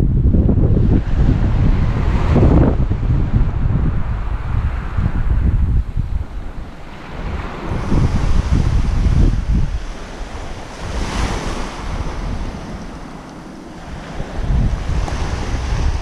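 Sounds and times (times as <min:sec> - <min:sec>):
wind buffeting microphone: 0:00.0 - 0:16.0
waves washing onto pebbles: 0:06.8 - 0:16.0.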